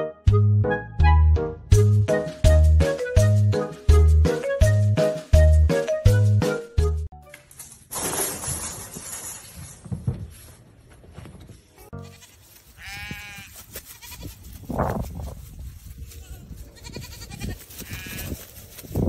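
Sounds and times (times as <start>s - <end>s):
animal bleating: 11.9s - 14.5s, 16.2s - 18.4s.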